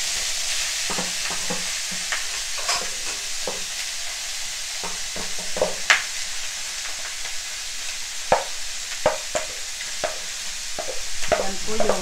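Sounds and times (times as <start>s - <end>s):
spatula scraping pan: 0.0s - 3.9s
meat sizzling in a pan: 0.0s - 12.0s
spatula knocking against pan: 4.8s - 5.8s, 10.8s - 12.0s.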